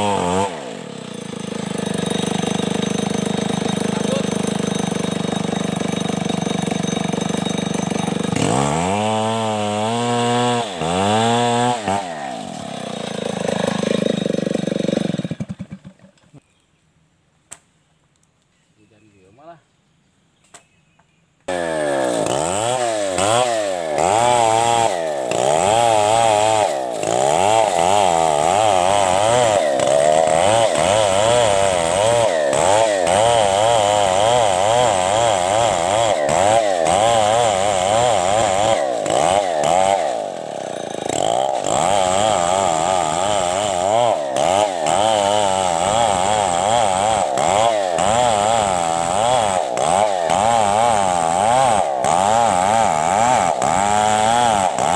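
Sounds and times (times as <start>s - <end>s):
chainsaw cutting wood: 0.0s - 16.2s, 21.4s - 54.9s.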